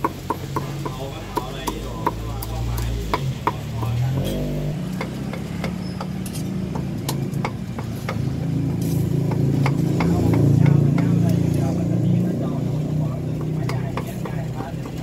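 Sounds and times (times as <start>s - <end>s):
cleaver chopping on wooden block: 0.0s - 4.0s, 5.0s - 8.3s
vehicle engine humming: 0.0s - 15.0s.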